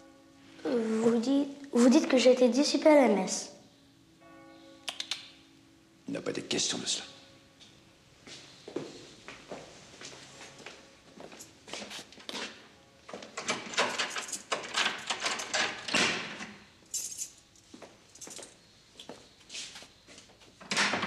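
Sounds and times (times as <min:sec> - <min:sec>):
keys rattling: 0:11.3 - 0:12.5, 0:13.1 - 0:16.1, 0:16.8 - 0:18.6
key scraping in a lock: 0:13.4 - 0:16.0.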